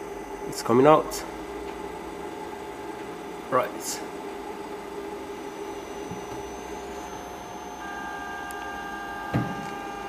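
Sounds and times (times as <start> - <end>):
printer mechanical hum: 0.0 - 10.0
higher steady tones: 5.0 - 10.0.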